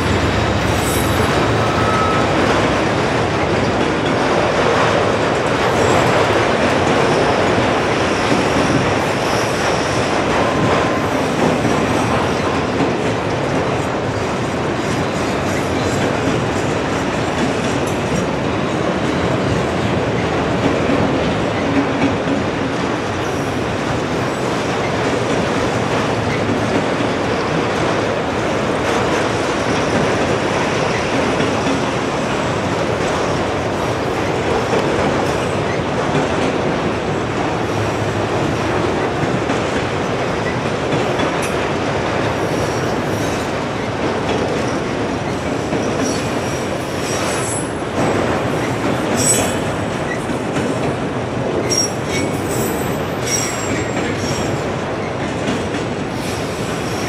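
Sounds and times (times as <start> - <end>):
train wheels rumbling on rail: 0.0 - 57.0
high wheel squeals: 0.7 - 2.4.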